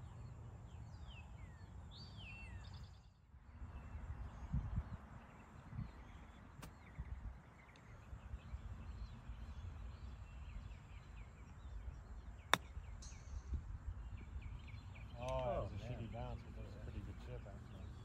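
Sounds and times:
birds chirping: 0.0s - 18.0s
low wind noise: 3.3s - 15.7s.

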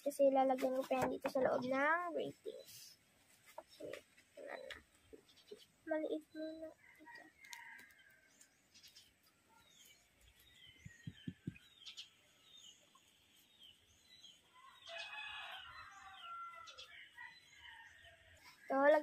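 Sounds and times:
small birds chirping: 0.0s - 19.0s
soft low knocks: 10.8s - 11.7s
rooster crowing: 14.5s - 18.2s.

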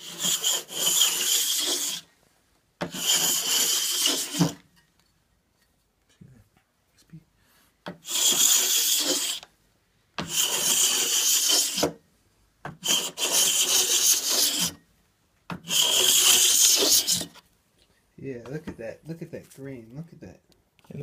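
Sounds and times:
scraper rasping on wood: 0.0s - 2.1s, 2.8s - 4.6s, 7.9s - 9.4s, 10.2s - 11.9s, 12.8s - 14.8s, 15.5s - 17.4s.

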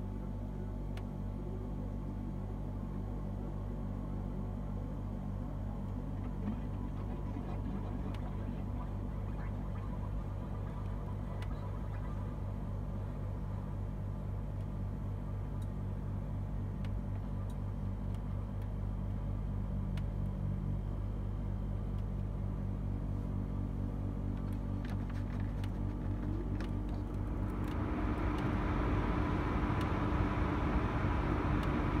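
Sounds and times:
air conditioner humming: 0.0s - 32.0s
light ticks: 19.9s - 20.4s.

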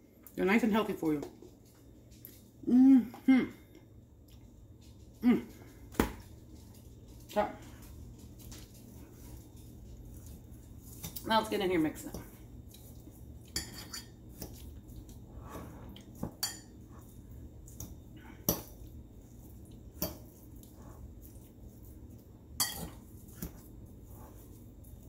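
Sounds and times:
fork clinking against a bowl: 13.4s - 14.6s, 22.6s - 23.0s.

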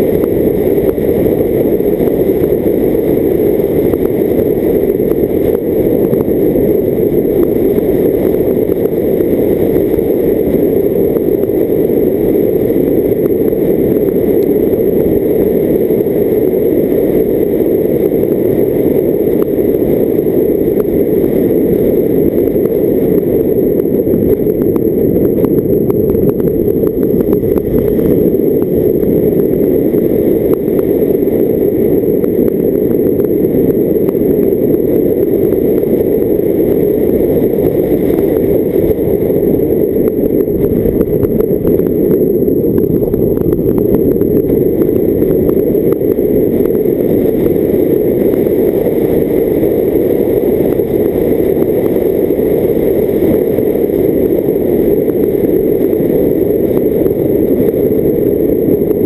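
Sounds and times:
muffled wind and road noise: 0.0s - 59.0s.

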